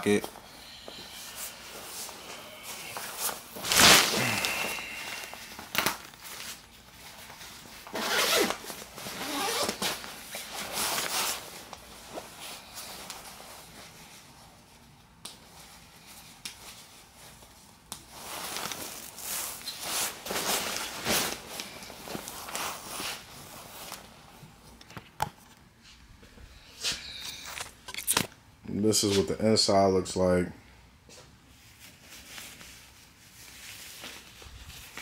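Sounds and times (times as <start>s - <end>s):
nylon coat rustling: 1.2s - 14.9s, 15.5s - 24.3s
zipper: 7.9s - 10.0s.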